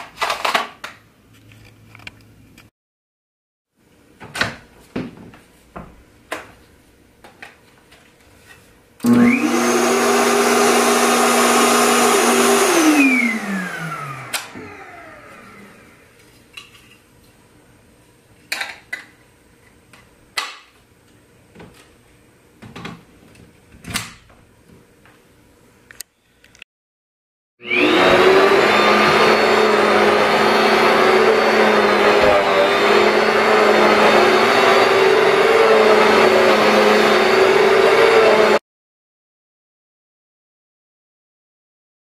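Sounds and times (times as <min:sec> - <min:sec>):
vacuum cleaner motor running: 0:09.0 - 0:16.2, 0:27.6 - 0:38.6.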